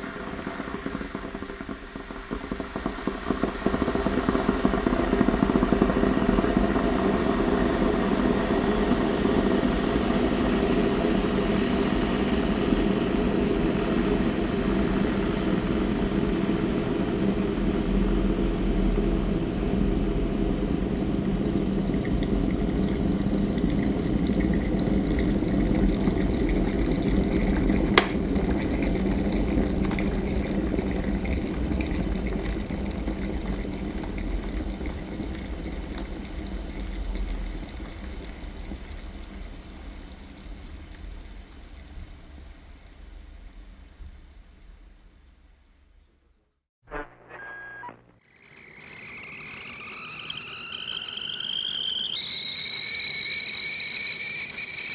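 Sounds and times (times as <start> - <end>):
electric kettle boiling: 0.0 - 43.2, 47.4 - 54.9
kettle switch click: 28.0 - 28.2.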